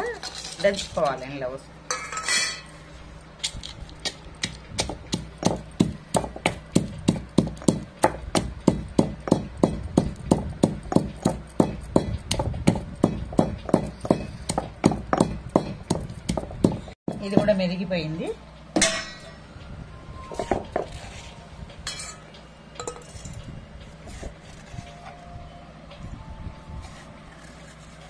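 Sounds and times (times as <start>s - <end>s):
pestle pounding in stone mortar: 4.0s - 17.6s.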